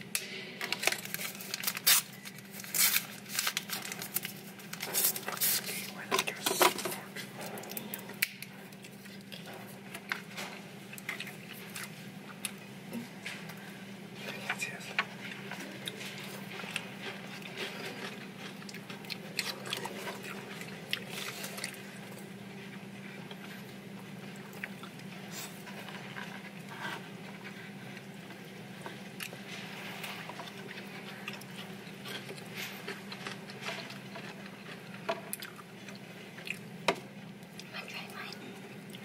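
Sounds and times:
chewing and mouth noises: 7.0s - 13.6s, 14.5s - 39.0s.

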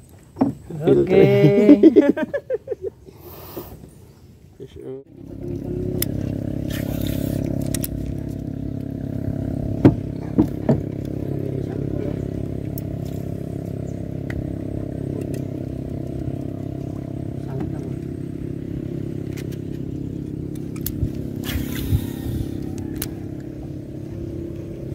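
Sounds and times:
boat engine running: 5.1s - 24.9s.

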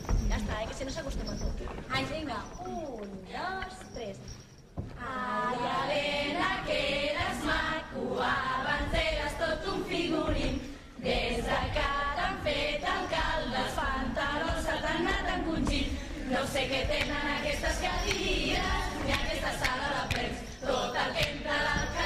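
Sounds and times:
group singing in chorus: 5.0s - 22.0s.

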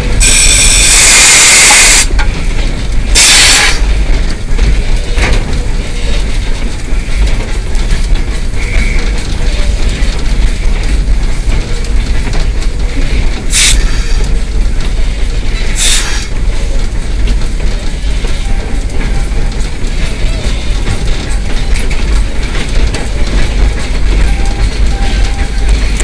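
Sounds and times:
steam locomotive running: 0.0s - 26.0s.

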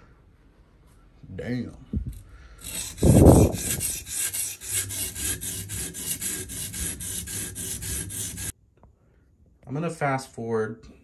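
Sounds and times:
sharpening stone rasping on knife: 2.6s - 8.5s.

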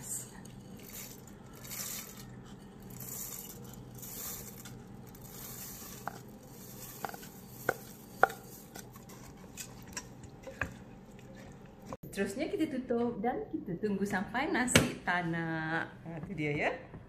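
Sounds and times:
wooden spatula stirring: 0.2s - 12.0s
rice pouring into pot: 0.4s - 8.9s.

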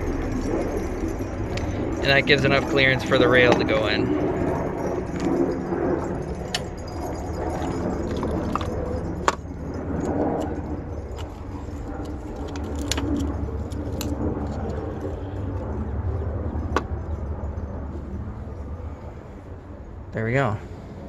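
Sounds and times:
metal parts clicking and clinking: 0.0s - 15.9s
low background rumble: 0.0s - 21.0s.

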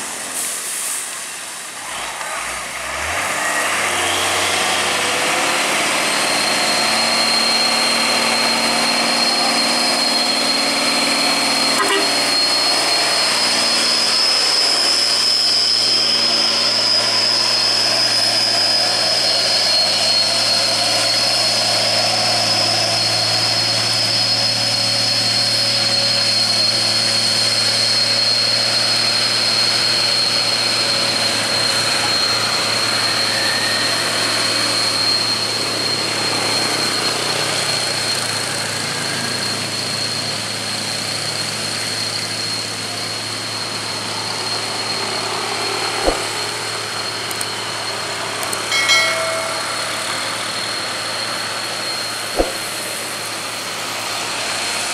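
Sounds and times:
diesel truck engine labouring: 0.0s - 54.9s
truck horn beep: 11.6s - 12.8s.

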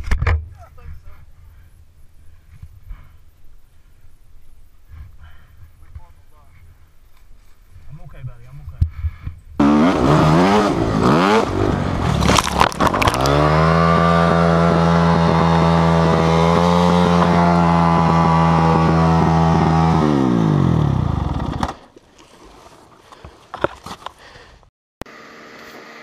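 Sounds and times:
dirt bike engine revving: 9.6s - 21.9s
bike crashing with knocks and scrapes: 11.8s - 15.1s.

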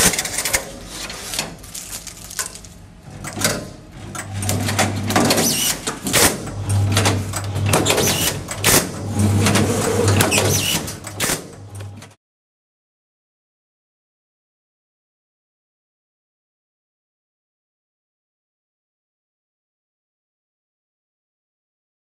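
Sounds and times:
strapping machine motor hum: 0.0s - 12.2s.

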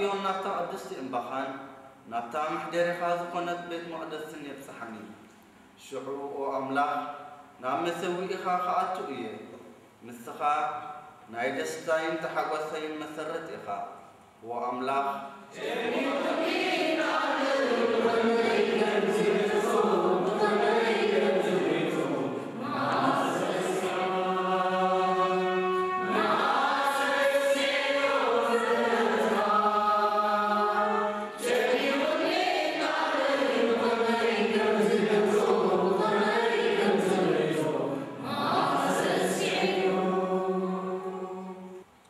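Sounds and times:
choir singing a hymn: 15.5s - 41.8s.

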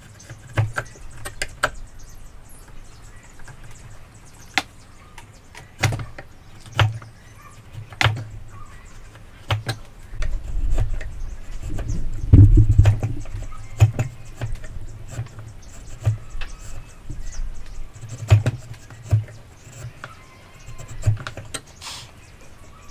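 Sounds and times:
chisel scraping wood: 5.7s - 22.2s.

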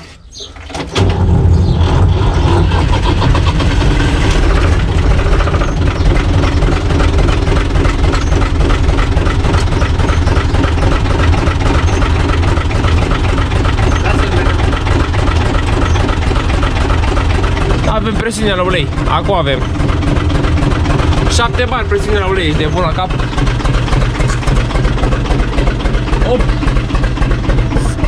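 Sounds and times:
diesel tractor engine running: 0.0s - 28.0s.

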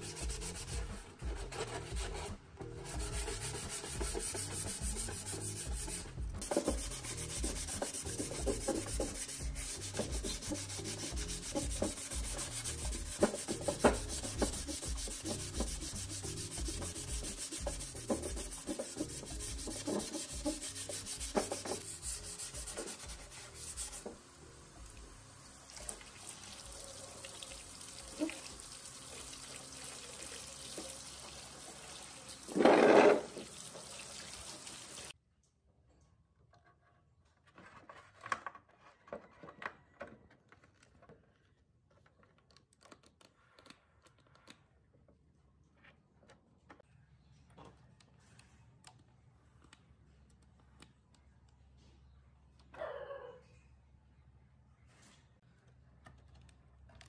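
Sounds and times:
wet sanding: 0.0s - 24.1s
water running and splashing: 25.6s - 35.1s.

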